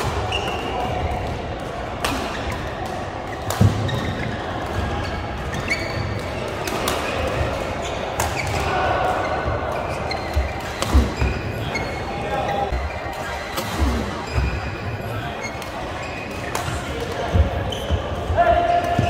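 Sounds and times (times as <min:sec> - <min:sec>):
rackets striking shuttlecock: 0:00.0 - 0:11.4, 0:15.4 - 0:18.0
murmur of voices in hall: 0:00.0 - 0:19.0.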